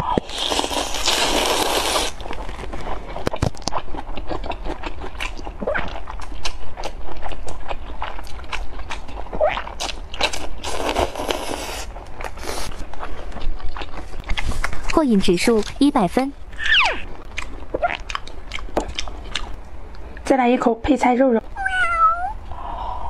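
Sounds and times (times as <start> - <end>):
chewing with wet mouth clicks: 2.4 - 10.5, 12.2 - 15.8, 17.2 - 20.0.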